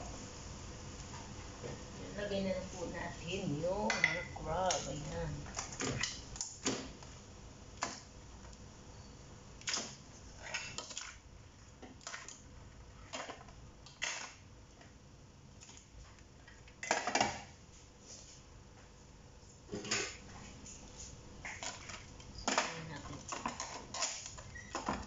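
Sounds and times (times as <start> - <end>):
crab shells clattering on metal: 21.4 - 25.0.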